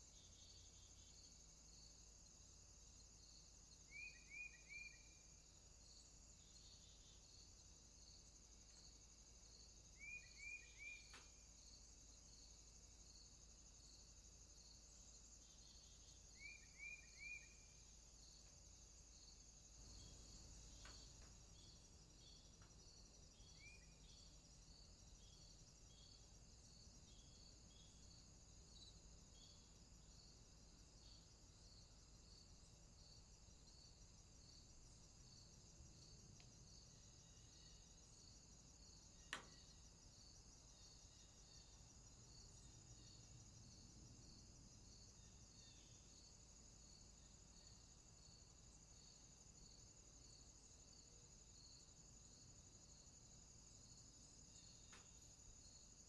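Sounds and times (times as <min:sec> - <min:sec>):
insect chorus chirping: 0:00.0 - 0:56.0
bird chirping: 0:10.0 - 0:11.2, 0:15.6 - 0:17.7.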